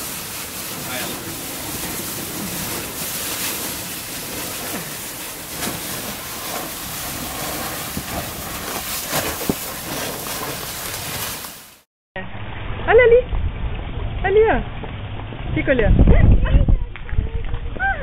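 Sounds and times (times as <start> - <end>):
rushing water: 0.0 - 11.9
wind buffeting microphone: 0.3 - 11.2, 13.1 - 18.0.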